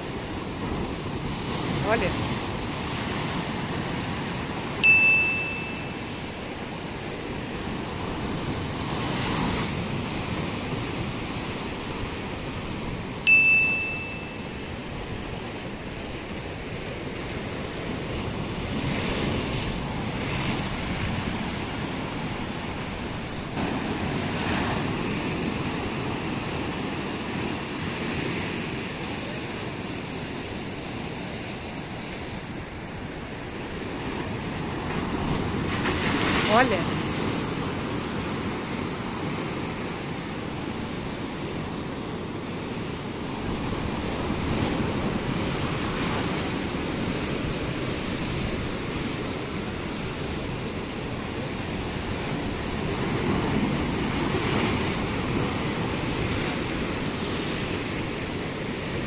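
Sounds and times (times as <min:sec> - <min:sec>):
short high ding: 0:04.8 - 0:06.3, 0:13.2 - 0:14.7
surf breaking over rocks: 0:15.2 - 0:31.8.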